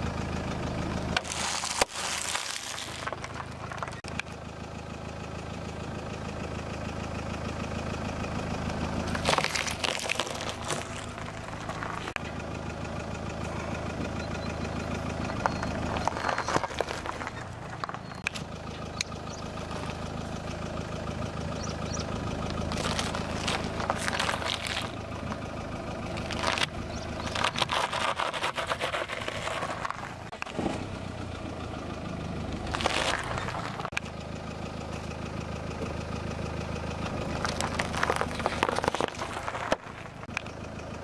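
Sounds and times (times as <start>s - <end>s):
car engine idling: 0.0s - 41.0s
tyre crushing vegetables: 1.2s - 4.0s, 9.1s - 12.2s, 22.7s - 25.0s, 26.2s - 30.8s.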